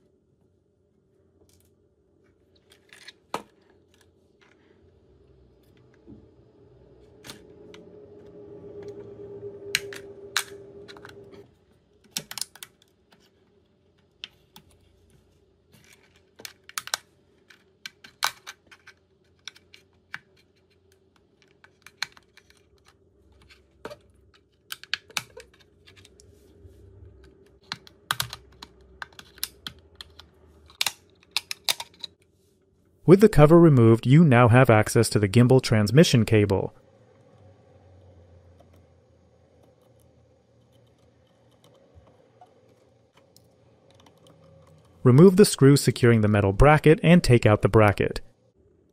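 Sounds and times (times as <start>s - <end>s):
steady hum: 3.6s - 11.9s, 33.0s - 48.9s.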